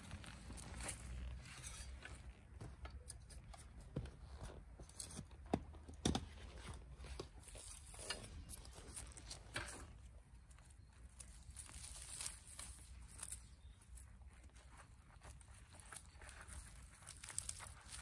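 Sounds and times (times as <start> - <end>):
digging fork in soil: 0.0 - 18.0.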